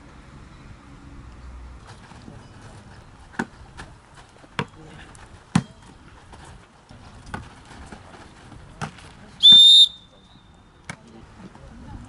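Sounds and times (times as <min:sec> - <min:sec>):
referee's whistle blast: 0:09.4 - 0:10.2.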